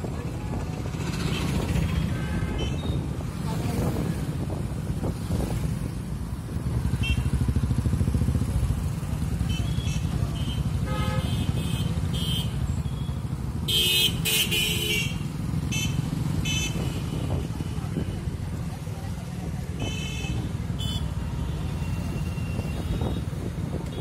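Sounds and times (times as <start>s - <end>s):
road traffic: 0.0s - 24.0s
vehicle horns honking: 1.2s - 3.0s, 9.4s - 17.6s, 19.8s - 24.0s
motorcycle engine running: 3.3s - 17.7s.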